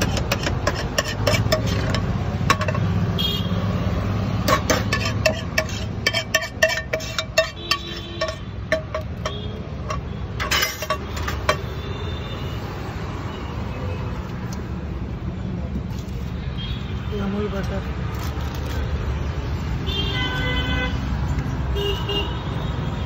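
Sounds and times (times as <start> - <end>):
metal spoon scraping a frying pan: 0.0 - 3.0, 4.4 - 11.8
road traffic rumble: 0.0 - 23.0.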